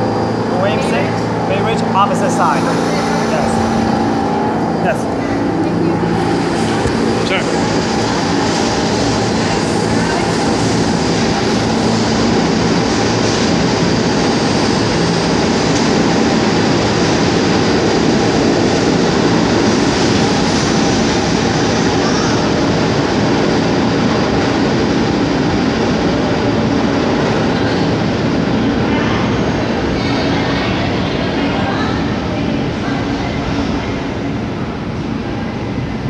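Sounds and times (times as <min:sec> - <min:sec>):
high whine: 0:00.0 - 0:24.9
subway train wheels rumbling: 0:00.0 - 0:36.0.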